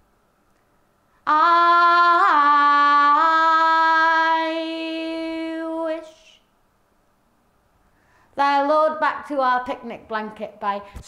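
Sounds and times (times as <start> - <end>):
woman singing unaccompanied: 1.2 - 6.5, 8.4 - 10.9.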